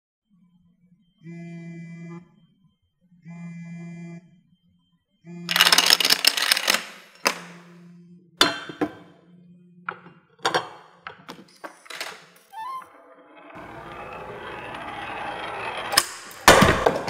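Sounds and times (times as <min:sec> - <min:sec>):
phone buzzing: 0:01.2 - 0:02.4, 0:03.2 - 0:04.4, 0:05.2 - 0:06.8
memory cards toppling clatter: 0:05.5 - 0:07.5.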